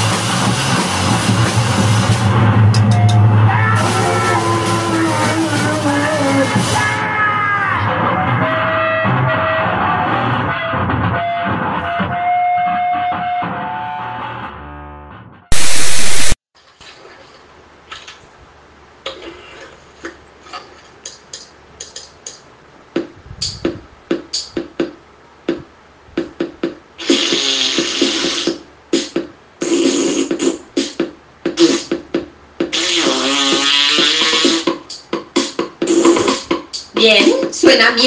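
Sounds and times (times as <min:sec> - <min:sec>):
harsh distorted noise bursts: 0:00.0 - 0:07.2, 0:15.5 - 0:16.4, 0:26.2 - 0:36.8.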